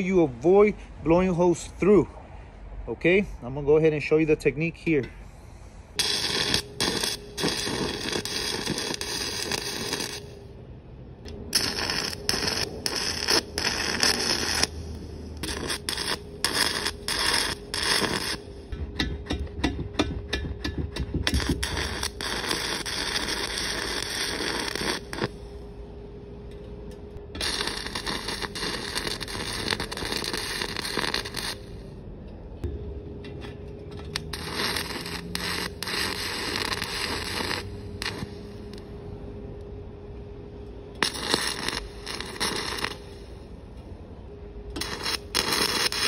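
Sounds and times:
welding arc crackling: 6.0 - 10.5, 11.3 - 25.7, 27.3 - 31.9, 34.1 - 38.9, 41.0 - 43.4, 44.7 - 46.0.

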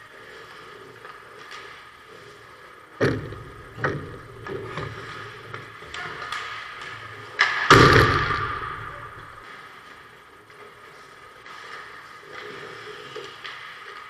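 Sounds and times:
hockey sticks and puck knocking: 2.9 - 9.8.

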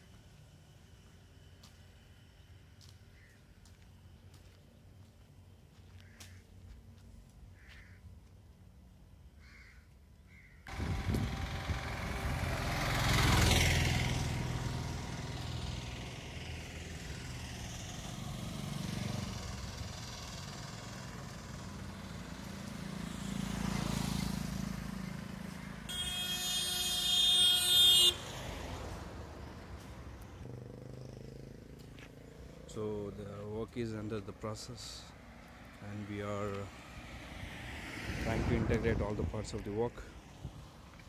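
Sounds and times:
road traffic passing: 0.0 - 41.0
vehicle horn: 10.7 - 13.2, 25.8 - 28.9.

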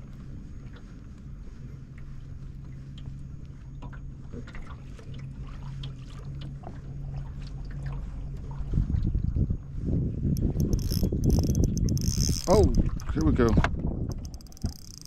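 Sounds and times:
small boat motor humming: 0.0 - 15.0
light clicks and ticks: 10.4 - 15.0.

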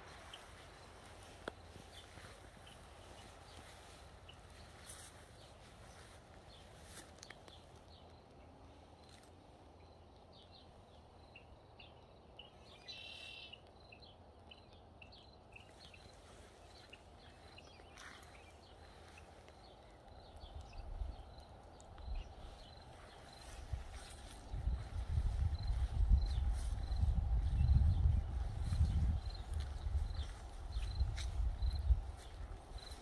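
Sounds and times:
birds chirping: 0.0 - 33.0
bird trill: 12.4 - 13.6.

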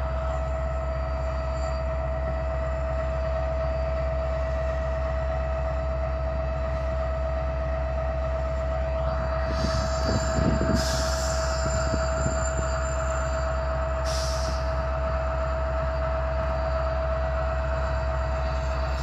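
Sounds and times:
diesel locomotive engine rumble: 0.0 - 19.0
high whine: 8.3 - 19.0.

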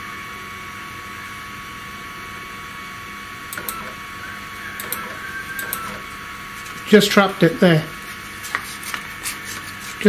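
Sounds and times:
small clicks: 3.5 - 3.9, 4.8 - 6.0
stepper motors whining: 3.5 - 7.2.

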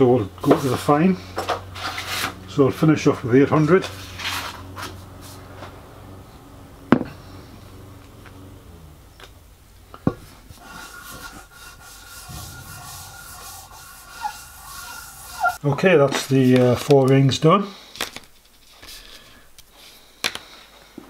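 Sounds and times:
sandpaper scrubbing: 0.4 - 2.4, 3.2 - 5.5, 10.4 - 16.9.

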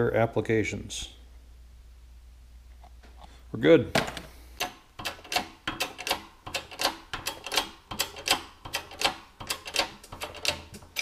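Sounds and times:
sharp metallic clicks: 4.6 - 11.0.

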